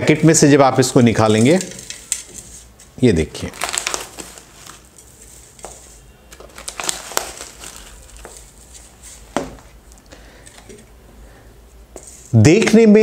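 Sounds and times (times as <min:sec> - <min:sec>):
dried petals rustling: 0:00.8 - 0:10.6
food pouch crinkling: 0:03.4 - 0:04.9, 0:06.3 - 0:08.6.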